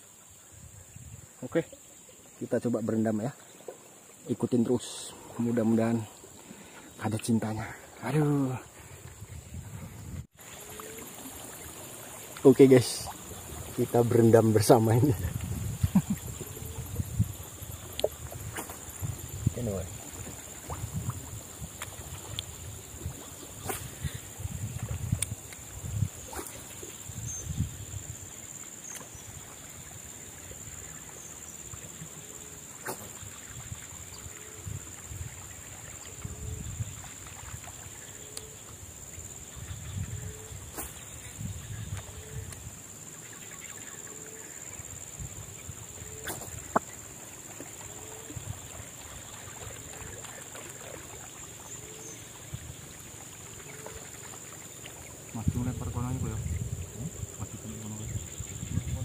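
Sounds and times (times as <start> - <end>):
water sloshing and splashes: 3.3 - 57.6
water sloshing around wading legs: 46.0 - 55.4.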